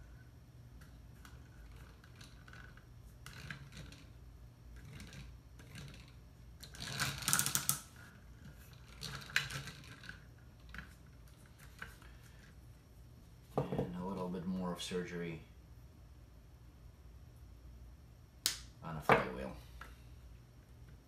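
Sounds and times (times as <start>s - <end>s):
wooden gears clicking: 1.3s - 4.2s, 4.8s - 12.0s.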